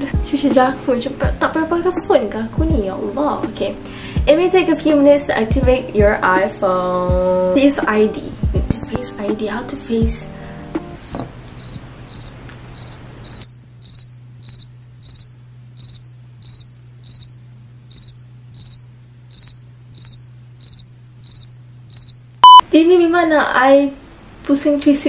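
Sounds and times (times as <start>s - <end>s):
cricket chirping: 11.0s - 22.6s.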